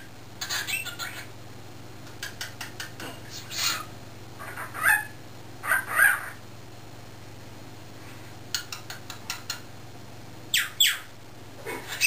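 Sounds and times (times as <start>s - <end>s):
cockatiel chirping and squawking: 0.4s - 1.3s, 3.3s - 6.4s.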